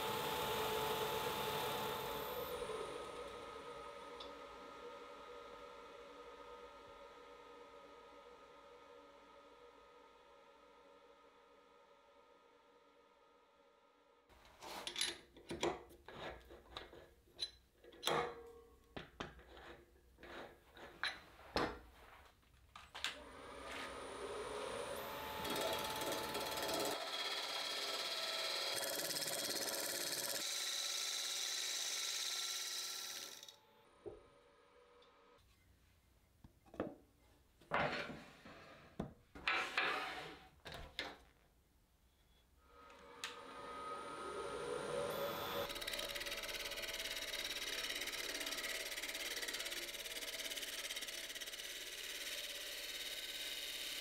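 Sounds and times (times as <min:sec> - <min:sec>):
wood lathe running with whine: 0:00.0 - 0:10.1, 0:23.2 - 0:35.4, 0:42.7 - 0:54.0.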